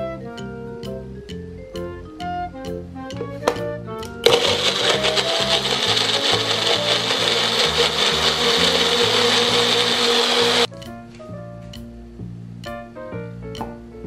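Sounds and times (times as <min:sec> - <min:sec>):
soft background music: 0:00.0 - 0:04.4, 0:10.7 - 0:14.0
blender running: 0:04.2 - 0:10.7.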